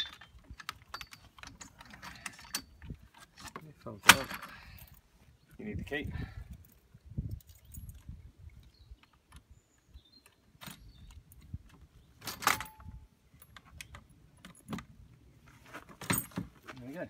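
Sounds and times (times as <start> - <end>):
metal rattling and clicking: 0.0 - 4.6.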